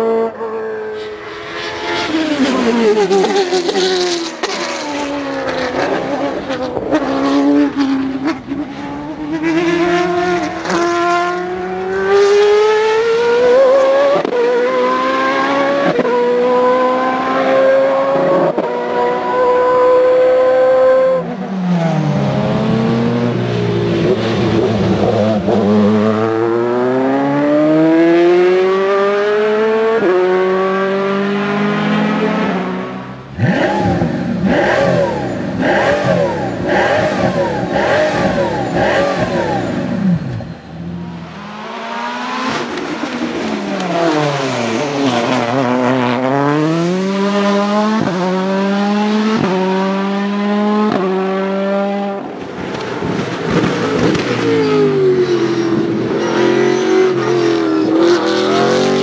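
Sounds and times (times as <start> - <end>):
race car accelerating: 0.0 - 59.0
engine revving in blips: 33.4 - 40.6
rally car engine shifting up: 41.2 - 59.0.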